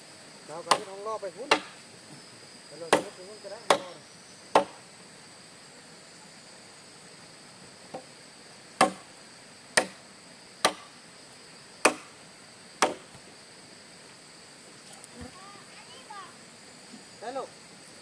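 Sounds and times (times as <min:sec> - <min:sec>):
insects buzzing: 0:00.0 - 0:18.0
sharp chopping blows: 0:00.7 - 0:01.8, 0:02.9 - 0:04.8, 0:08.8 - 0:09.1, 0:09.8 - 0:10.0, 0:10.6 - 0:10.9, 0:11.8 - 0:12.1, 0:12.8 - 0:13.2.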